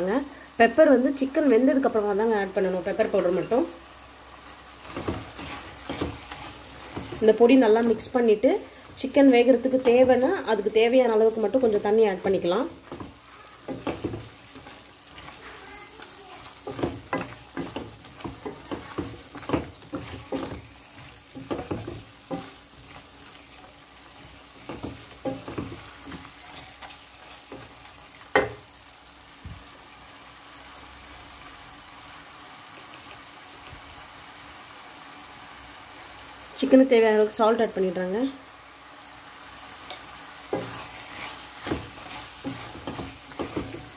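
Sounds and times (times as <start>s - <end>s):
masala sizzling: 0.0s - 43.9s
spatula scraping a pan: 4.4s - 28.6s, 39.8s - 43.9s.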